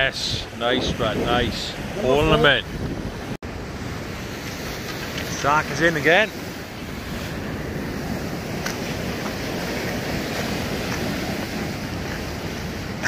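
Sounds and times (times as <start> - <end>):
wind noise on microphone: 0.0 - 5.3
sea waves washing on shore: 0.0 - 13.0.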